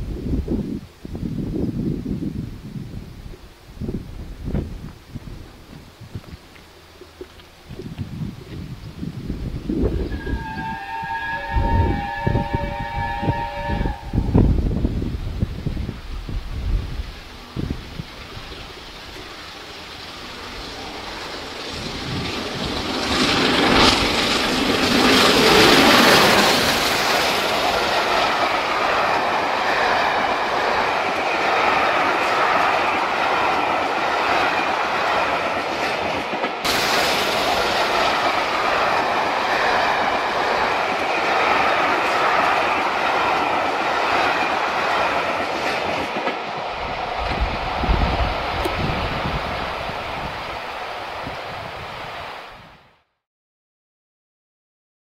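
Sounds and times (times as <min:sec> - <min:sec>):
steam locomotive passing: 0:00.0 - 0:53.0
steel wheels rolling on rails: 0:14.8 - 0:52.3.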